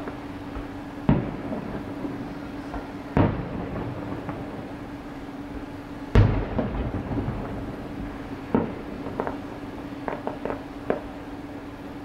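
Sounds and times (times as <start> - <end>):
small firework pops: 0.0 - 1.8, 8.5 - 9.4, 10.0 - 11.2
firework bang: 1.0 - 4.8, 6.1 - 11.1.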